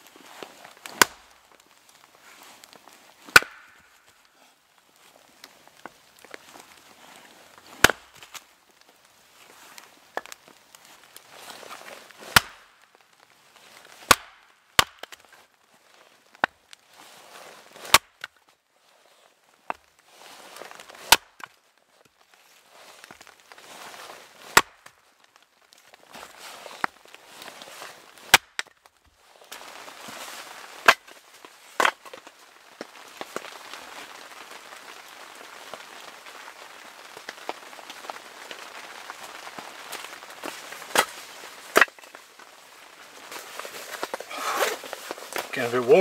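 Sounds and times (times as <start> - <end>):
axe splitting wood: 0.9 - 1.3, 3.3 - 3.8, 7.8 - 8.3, 12.2 - 12.6, 14.1 - 15.3, 17.8 - 18.3, 21.1 - 21.5, 24.5 - 24.8, 28.3 - 28.7, 40.9 - 41.1, 41.7 - 41.9.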